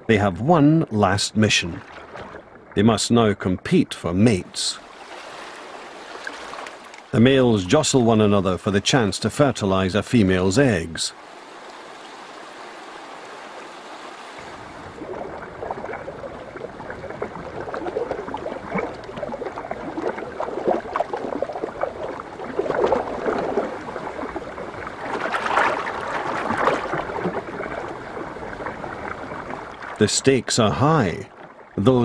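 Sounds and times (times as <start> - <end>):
fish splashing in shallow water: 1.8 - 2.8, 4.8 - 7.2, 11.2 - 30.0
river water rushing: 4.8 - 7.2, 11.1 - 30.0.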